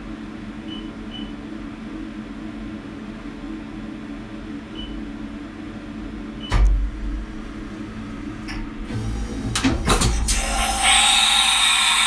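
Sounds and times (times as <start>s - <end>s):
milling machine humming: 7.2s - 12.0s.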